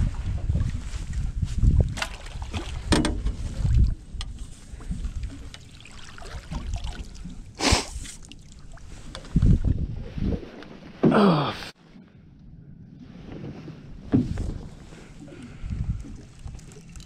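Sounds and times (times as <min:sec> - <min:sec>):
wind buffeting microphone: 0:00.0 - 0:05.6, 0:08.8 - 0:10.6, 0:13.5 - 0:17.0
knocks from fishing net and rod: 0:02.9 - 0:03.4.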